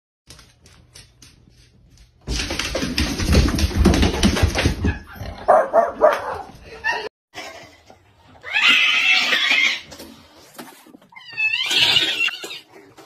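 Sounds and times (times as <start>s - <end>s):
dogs barking: 4.8s - 7.1s.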